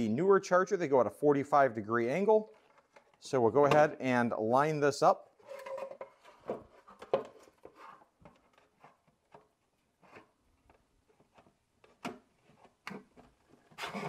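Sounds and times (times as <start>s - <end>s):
soft plastic scraping: 2.4s - 3.2s, 5.4s - 14.0s
plastic knocks and clicks: 5.9s - 9.5s.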